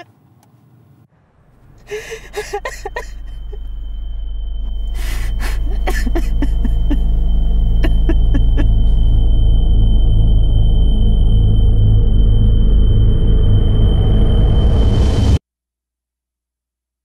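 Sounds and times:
low droning film score: 1.2 - 15.4
man sobbing and gasping: 1.9 - 3.6, 5.0 - 7.0, 7.8 - 8.7
high steady ringing tone: 2.2 - 15.1.

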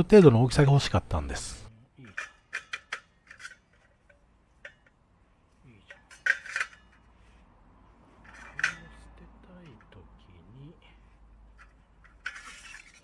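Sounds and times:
metal parts scraping and clinking: 2.0 - 5.0, 5.8 - 7.4, 8.2 - 9.1, 11.5 - 13.0.

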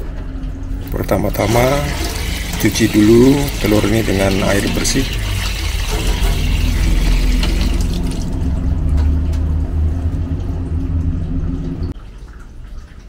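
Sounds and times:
low steady hum: 0.0 - 13.0
tap water running into steel sink: 0.8 - 8.6.

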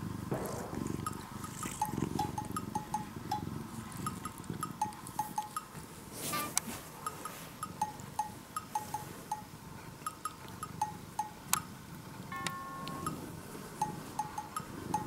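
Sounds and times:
bell-like plucked music: 12.3 - 15.0.

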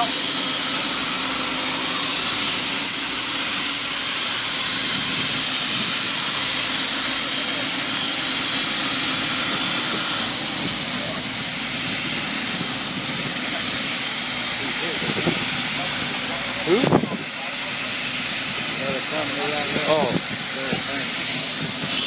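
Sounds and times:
loud hissing from rig: 0.0 - 22.0.

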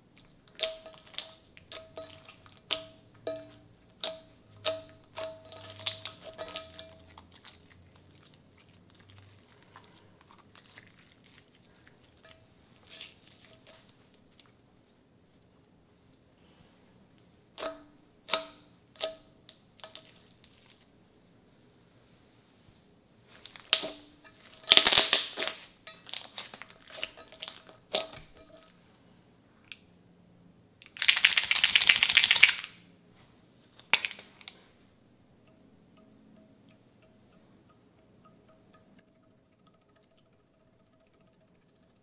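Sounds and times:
slime crackling squish: 0.1 - 14.6, 23.3 - 28.5.

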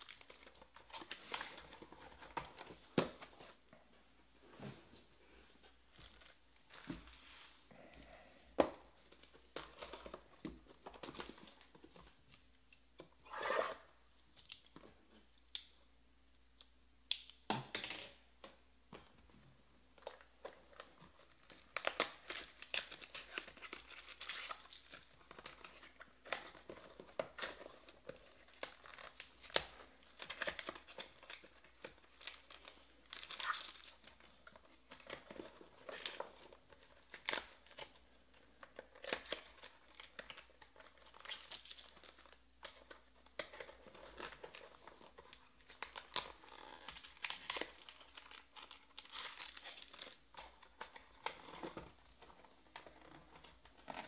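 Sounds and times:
foil wrappers crinkling and tearing: 21.3 - 51.8.

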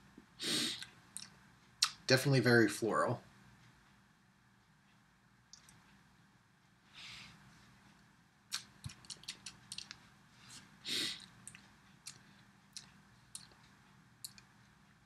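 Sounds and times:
lip smacks and tongue clicks: 8.5 - 10.0, 11.2 - 13.6, 14.2 - 14.5.

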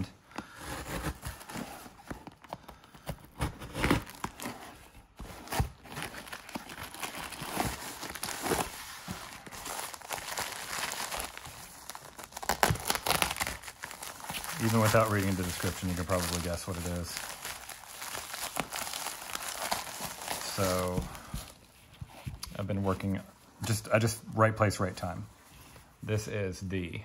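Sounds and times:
cardboard scraping and tearing: 0.4 - 2.2, 3.3 - 21.6
plastic mailer crinkling: 0.6 - 21.6.

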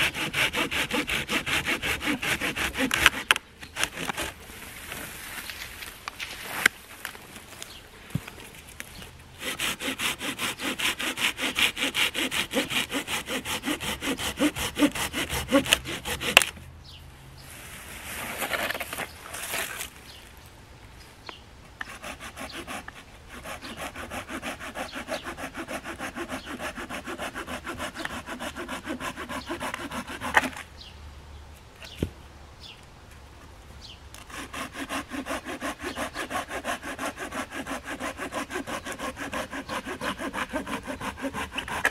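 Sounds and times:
saw cutting a branch: 0.0 - 16.7, 21.8 - 30.7, 34.1 - 41.9.

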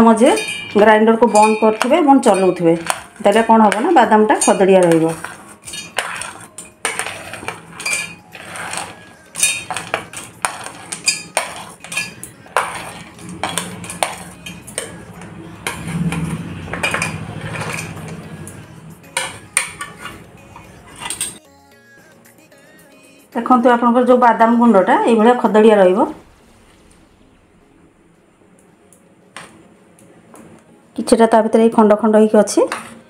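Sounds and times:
spoon scraping plastic plate: 1.3 - 18.6, 19.2 - 21.4.

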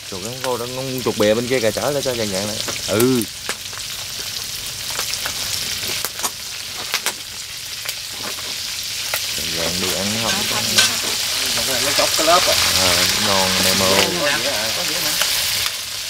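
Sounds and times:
meat sizzling in a pan: 0.0 - 16.0
crackling pops: 2.6 - 9.3.

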